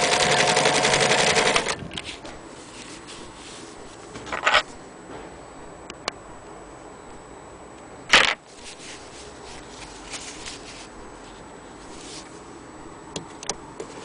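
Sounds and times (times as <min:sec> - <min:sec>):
denim fabric rustling: 0:08.5 - 0:12.4.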